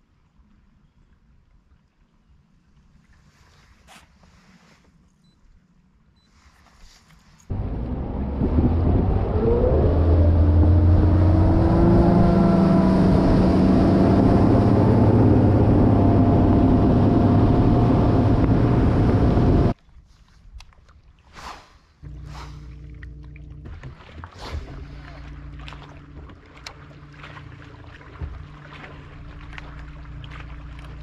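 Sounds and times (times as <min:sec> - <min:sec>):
outboard motor running: 0:07.5 - 0:19.7, 0:22.0 - 0:31.0
wind and water rush: 0:07.5 - 0:19.8, 0:23.7 - 0:31.0.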